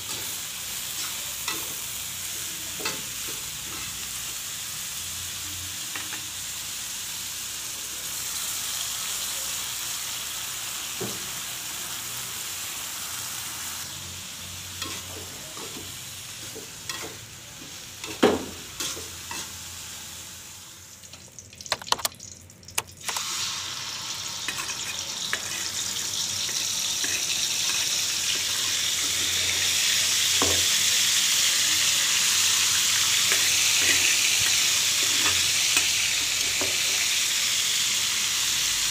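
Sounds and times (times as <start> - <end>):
vegetables sizzling in wok: 0.0 - 21.5, 23.0 - 38.9
chili paste sizzling in oil: 0.0 - 22.4, 23.0 - 38.9
spatula scraping wok: 13.6 - 20.1, 24.3 - 37.2.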